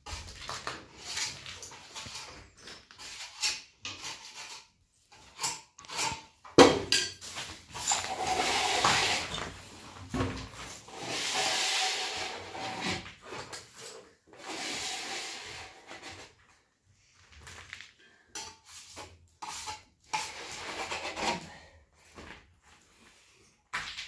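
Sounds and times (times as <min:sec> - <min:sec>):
trowel scraping plaster wall: 0:00.0 - 0:06.6, 0:07.2 - 0:09.9, 0:10.5 - 0:16.6, 0:18.1 - 0:21.6.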